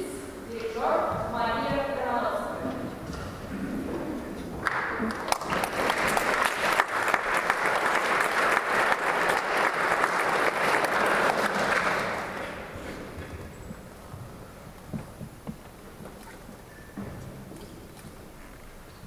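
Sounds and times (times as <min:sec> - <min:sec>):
audience applauding: 0:04.6 - 0:13.2.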